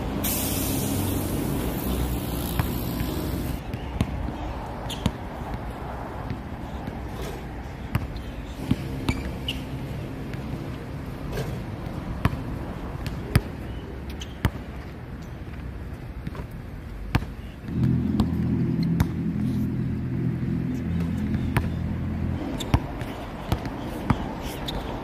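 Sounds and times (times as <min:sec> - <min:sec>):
basketball bouncing on court: 0:02.4 - 0:04.2, 0:07.8 - 0:09.6, 0:11.3 - 0:15.0, 0:16.2 - 0:19.2, 0:21.0 - 0:21.9, 0:22.6 - 0:24.8
vehicle engine running: 0:17.7 - 0:22.4.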